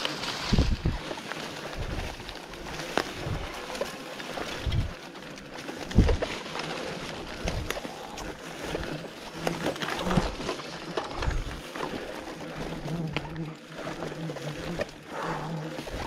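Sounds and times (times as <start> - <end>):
bicycle riding over rough ground: 0.0 - 16.0
bike clicks and rattles: 0.0 - 16.0
wind buffeting microphone: 0.4 - 1.1, 1.7 - 2.3, 4.6 - 5.0, 5.9 - 6.2.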